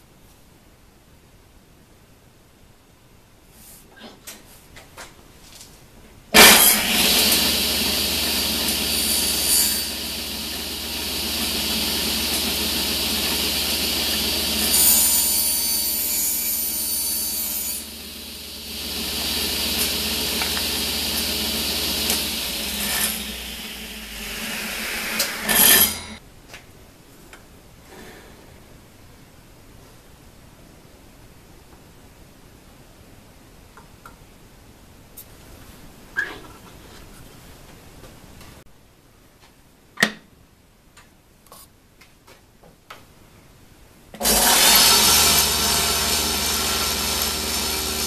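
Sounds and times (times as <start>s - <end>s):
table saw cutting plywood: 6.4s - 26.2s, 44.2s - 48.0s.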